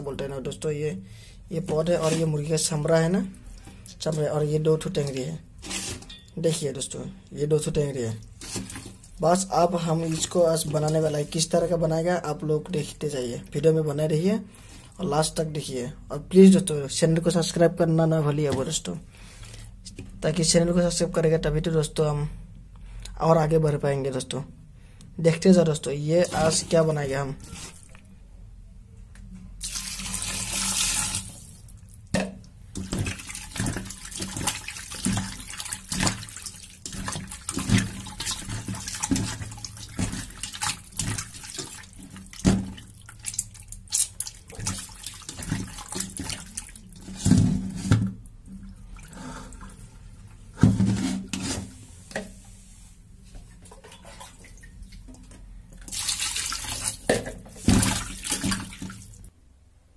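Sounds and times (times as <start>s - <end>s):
water splashing in a bowl: 29.6s - 49.8s, 53.7s - 59.3s.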